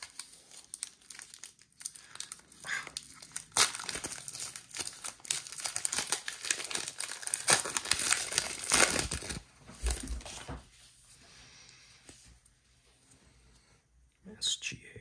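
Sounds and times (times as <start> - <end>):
plastic wrapper crinkling and tearing: 0.0 - 10.5.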